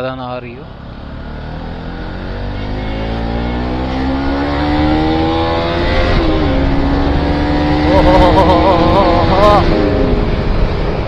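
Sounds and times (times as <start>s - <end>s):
motorcycle engine accelerating: 0.7s - 11.0s
wind noise on microphone: 4.2s - 11.0s.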